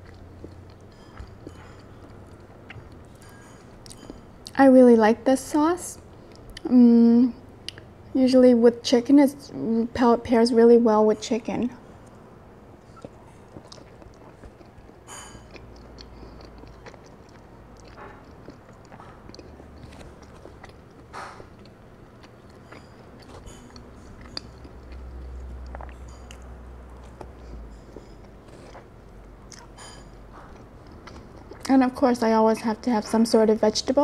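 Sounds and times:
person chewing chicken: 0.0 - 4.3, 12.8 - 31.7.

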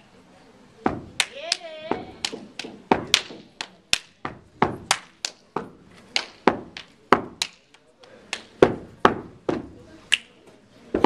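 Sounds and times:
foot stomps: 0.9 - 1.2, 1.9 - 5.8, 6.4 - 7.5, 8.6 - 9.8
hand claps and body slaps: 1.2 - 9.2, 10.1 - 10.4.

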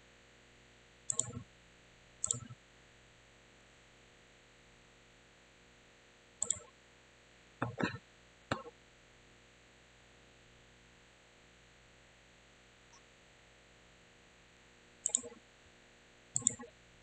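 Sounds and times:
computer mouse clicking: 1.1 - 1.4, 2.2 - 2.6, 6.4 - 6.7, 15.0 - 15.4, 16.4 - 16.7.

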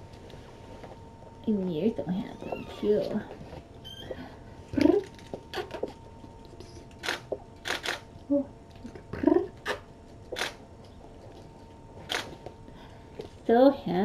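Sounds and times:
camera shutter clicking: 7.0 - 8.0, 10.4 - 10.6
person murmuring: 9.1 - 9.6.

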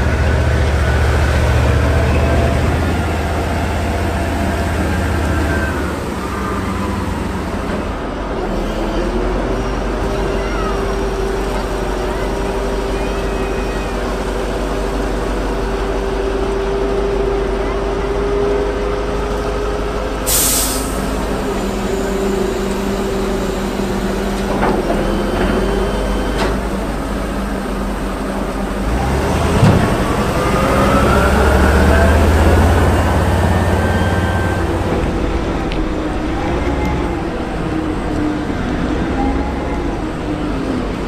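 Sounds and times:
heavy vehicle engine running: 0.0 - 41.0
air hiss: 20.3 - 24.3.

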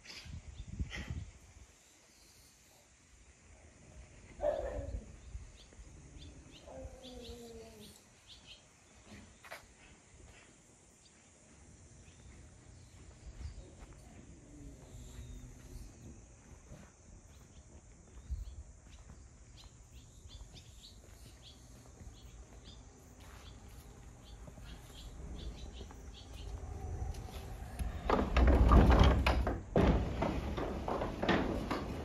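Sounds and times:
faint bird chirps: 4.4 - 9.9
wooden sliding door rattling: 25.2 - 32.0.

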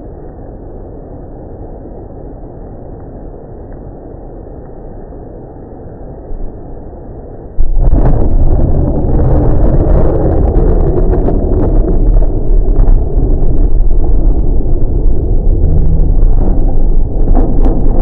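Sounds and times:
thunder rumbling: 7.5 - 18.0
heavy rain: 7.6 - 18.0.

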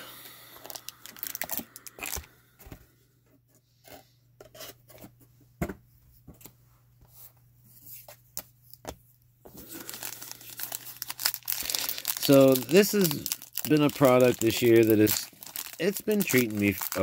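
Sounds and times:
foil pack rustling: 0.6 - 2.2, 9.6 - 17.0.

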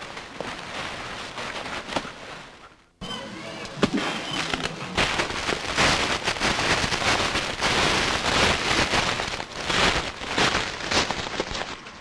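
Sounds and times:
boots crunching dry leaves: 3.9 - 12.0.

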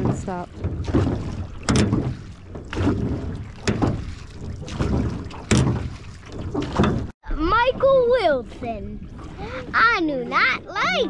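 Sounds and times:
oars knocking in metal oarlocks: 0.0 - 7.1
oar blades splashing water: 0.0 - 11.0.

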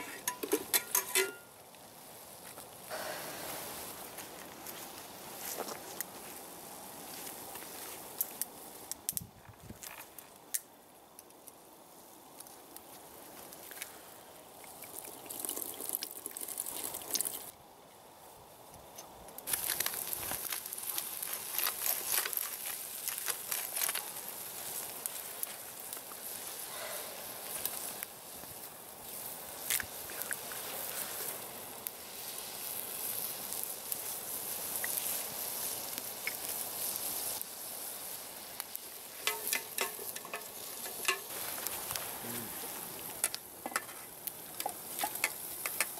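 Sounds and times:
campfire crackling and popping: 0.0 - 45.9.

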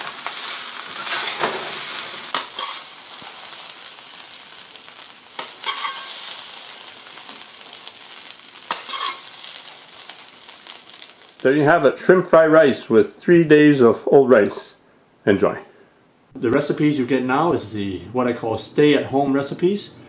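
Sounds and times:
spatula scraping wok: 0.0 - 11.3
rice sizzling in a wok: 0.0 - 11.7.

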